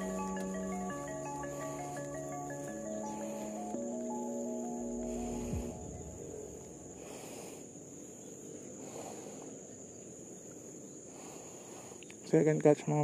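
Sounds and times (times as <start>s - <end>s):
music: 0.0s - 7.1s
faint outdoor background noise: 0.0s - 13.0s
insects trilling: 0.0s - 13.0s.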